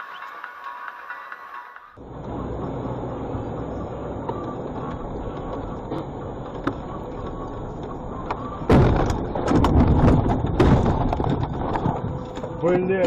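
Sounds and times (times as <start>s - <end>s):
vehicle road noise: 0.0s - 13.0s
vehicle crashing into snowbank: 8.7s - 12.1s.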